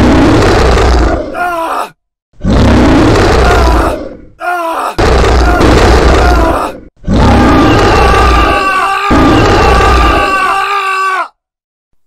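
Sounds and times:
monster growling and roaring: 0.0s - 11.0s
high held cry: 1.3s - 2.0s, 3.3s - 11.4s.

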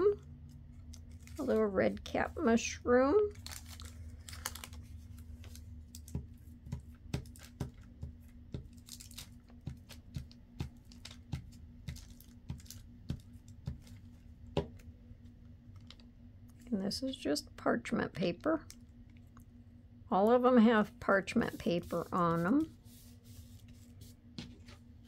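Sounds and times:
steady low hum: 0.0s - 25.0s
paper clicks and taps: 5.4s - 14.8s.

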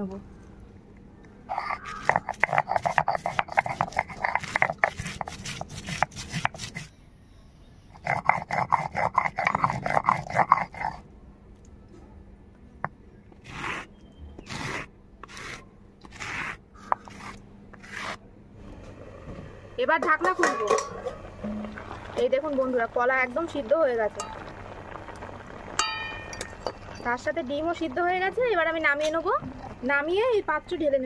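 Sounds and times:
stone roller grinding on slab: 1.5s - 6.9s, 8.0s - 11.0s, 13.4s - 18.2s
stone scraping strokes: 1.5s - 6.9s, 8.0s - 11.0s, 13.4s - 18.2s.

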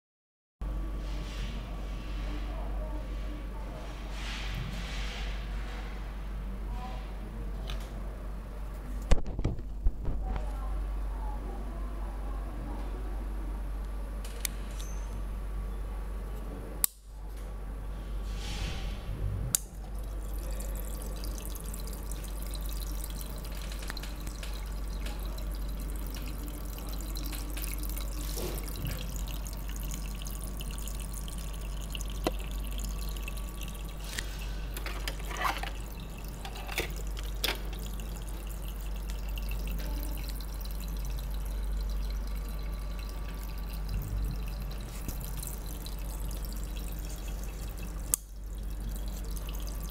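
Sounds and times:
water trickling and dripping: 19.7s - 49.9s.

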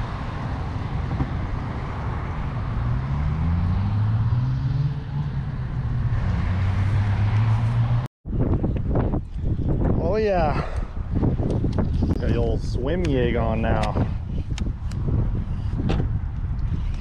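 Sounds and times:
background traffic noise: 0.0s - 17.0s
vehicle engine pulling away: 0.7s - 8.1s.

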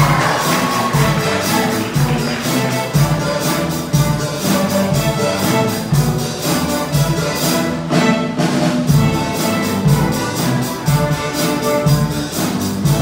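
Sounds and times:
steady low beat: 0.0s - 7.9s
string orchestra playing: 0.0s - 13.0s.

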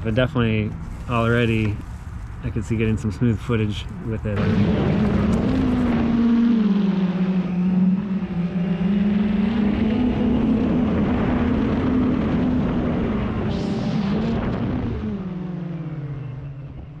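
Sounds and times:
drone motors whining: 4.1s - 17.0s
wind noise: 7.3s - 15.7s.

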